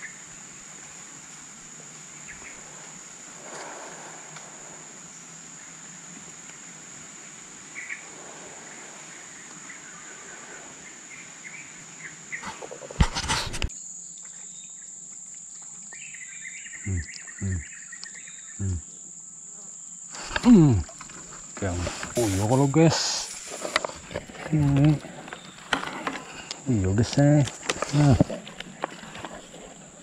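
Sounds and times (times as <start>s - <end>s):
high-pitched insect drone: 13.6s - 30.0s
short low falling calls: 16.8s - 17.8s, 18.5s - 18.9s, 20.2s - 23.6s.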